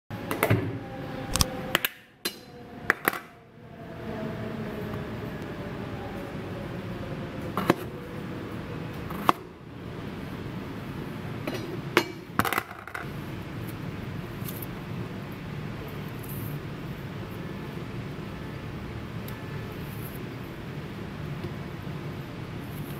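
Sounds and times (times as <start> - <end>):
mushrooms torn by hand: 1.3 - 1.5.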